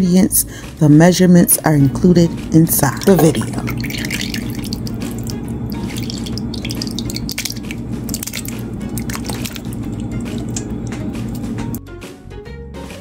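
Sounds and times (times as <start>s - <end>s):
background music: 0.0s - 13.0s
tomatoes plopping into pot: 3.0s - 11.4s.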